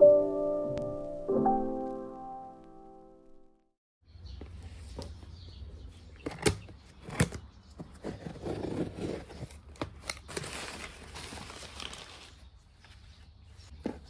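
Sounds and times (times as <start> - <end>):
paper wrapping rustling: 9.0 - 13.2.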